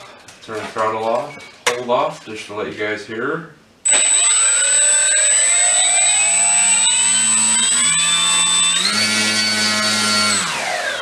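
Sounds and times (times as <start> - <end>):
electric motor whine: 3.9 - 11.0.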